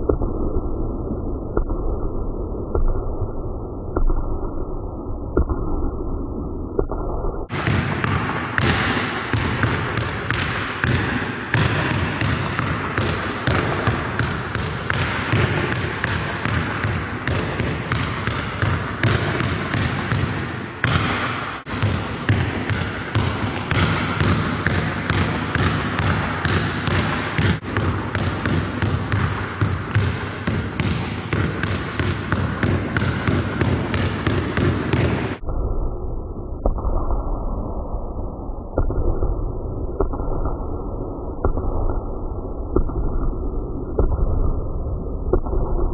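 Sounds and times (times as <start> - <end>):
basketballs bouncing: 6.8 - 35.4.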